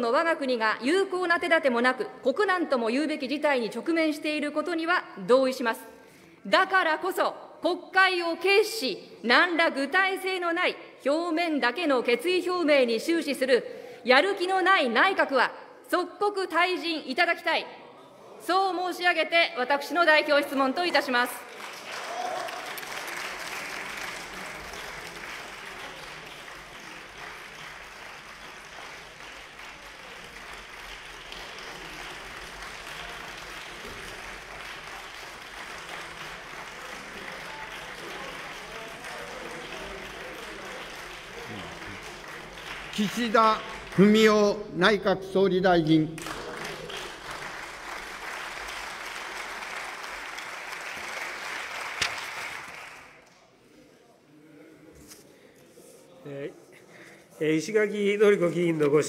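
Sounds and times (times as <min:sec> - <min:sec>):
people applauding: 0:20.6 - 0:44.7, 0:46.2 - 0:53.6.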